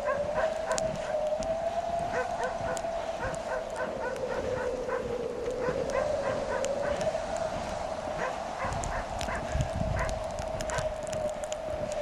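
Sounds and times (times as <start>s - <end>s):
wind howling: 0.0s - 12.0s.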